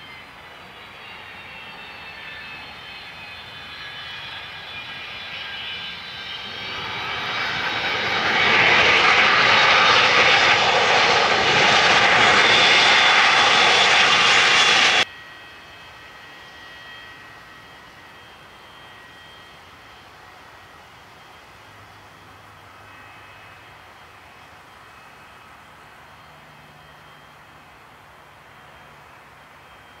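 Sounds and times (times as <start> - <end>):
jet engines whining: 0.0 - 30.0.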